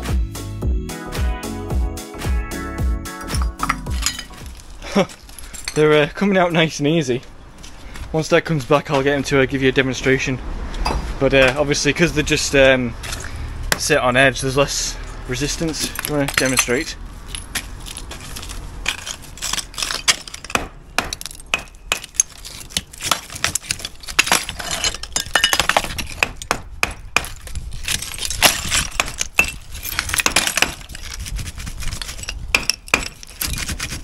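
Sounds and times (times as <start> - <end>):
bricks and rubble clattering: 3.2 - 6.2, 15.5 - 34.0.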